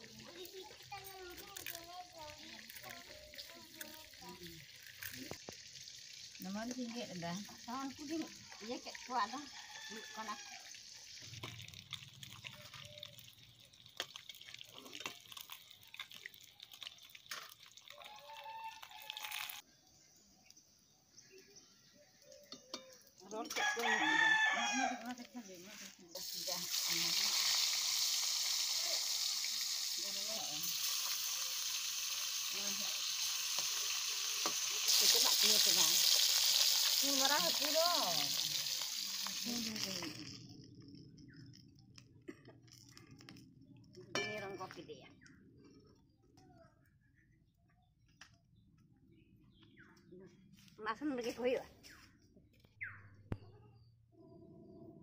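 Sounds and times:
fish frying in hot oil: 0.0 - 19.6, 26.1 - 40.6.

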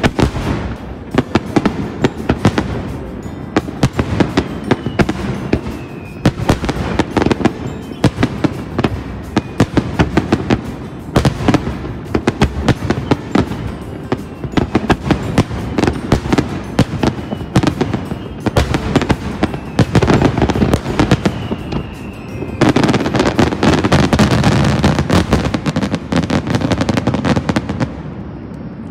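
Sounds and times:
fireworks bursting and crackling: 0.0 - 28.9.

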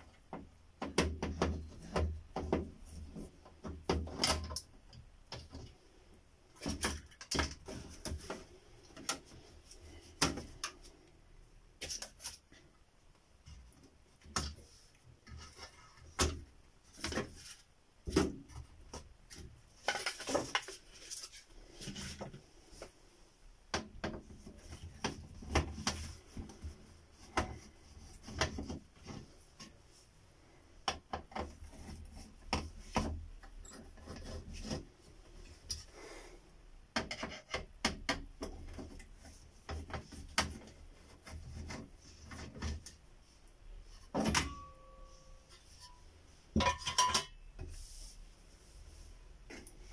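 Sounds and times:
clicks and knocks of plastic parts: 0.0 - 5.8, 6.5 - 11.1, 13.4 - 21.2.

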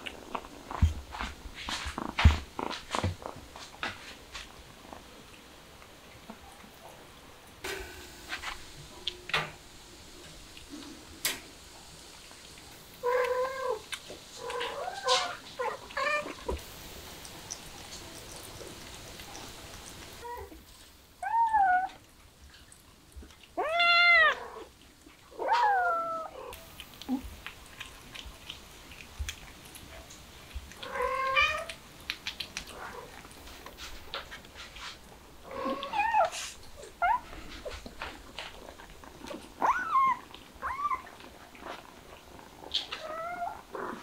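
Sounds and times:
cat meowing: 23.6 - 24.7, 42.9 - 43.7.

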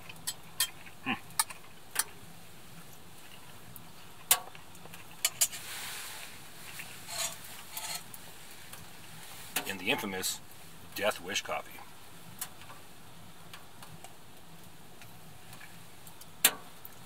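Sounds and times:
fork scraping a plate: 6.7 - 8.1.

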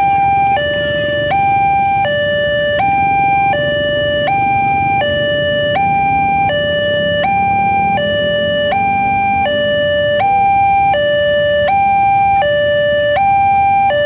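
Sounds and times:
level crossing two-tone alarm: 0.0 - 14.0
motorcycles rumbling past: 0.3 - 10.2.

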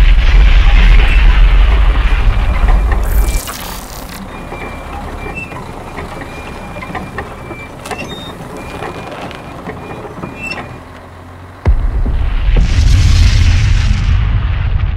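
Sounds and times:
loud explosion blast: 0.0 - 3.4, 11.6 - 14.9
tank engine rumble: 0.0 - 14.9
mechanical clicks and clanks: 1.6 - 11.1.

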